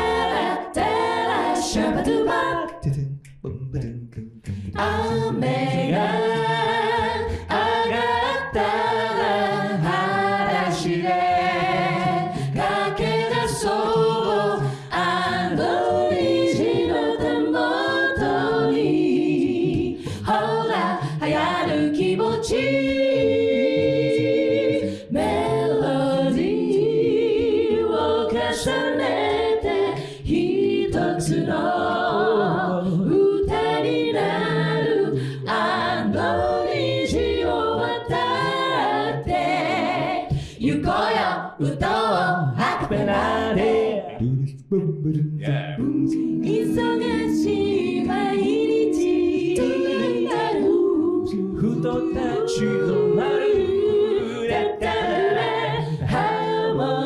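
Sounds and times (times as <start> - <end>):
a cappella group singing: 0.0 - 57.0
vocal percussive hits: 1.7 - 8.9, 37.5 - 50.8.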